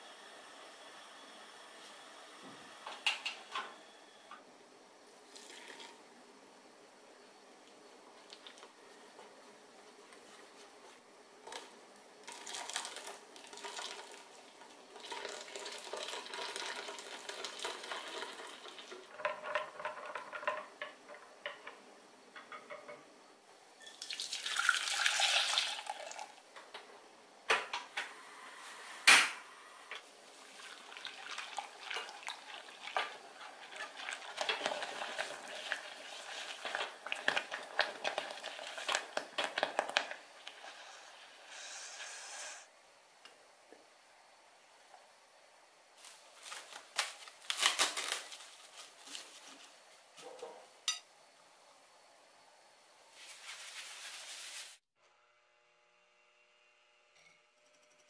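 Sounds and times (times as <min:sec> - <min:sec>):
liquid pouring into saucepan: 0:05.2 - 0:06.0, 0:12.2 - 0:20.6, 0:23.8 - 0:26.4, 0:30.3 - 0:40.8
whisk scraping in pot: 0:32.0 - 0:39.6.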